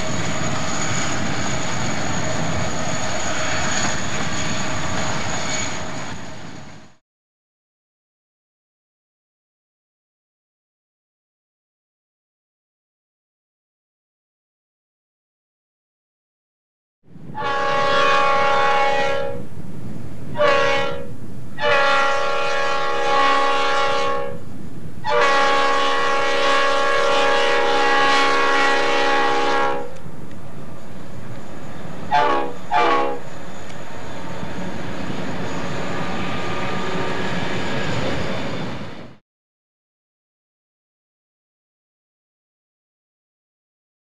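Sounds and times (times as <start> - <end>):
train running noise: 0.0 - 7.0, 17.1 - 39.2
locomotive air horn blasts: 17.4 - 19.5, 20.4 - 24.4, 25.0 - 30.0, 32.1 - 33.3.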